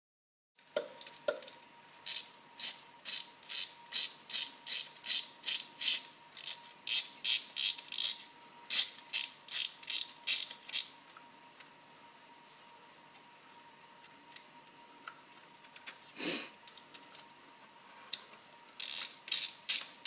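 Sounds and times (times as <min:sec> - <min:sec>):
ratchet wrench clicking: 0:02.0 - 0:10.9, 0:18.8 - 0:19.9.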